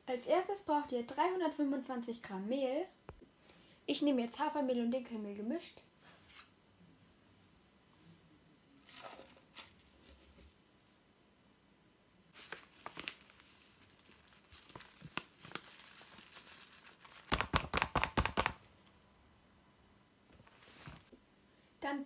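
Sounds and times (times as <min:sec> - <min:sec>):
paper bag crinkling: 0:08.8 - 0:10.2, 0:12.3 - 0:18.6.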